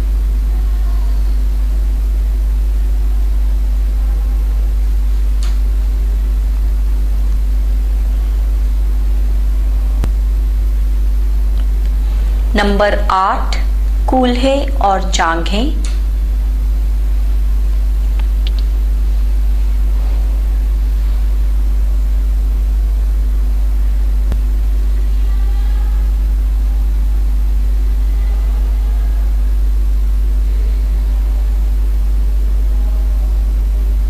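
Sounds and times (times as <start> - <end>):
low hum: 0.0 - 28.2.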